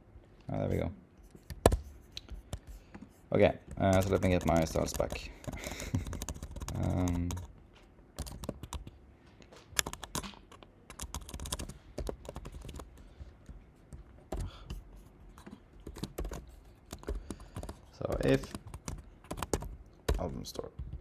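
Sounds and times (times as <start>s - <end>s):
keyboard typing: 3.7s - 7.5s, 8.2s - 9.0s, 9.8s - 13.6s, 15.4s - 21.0s.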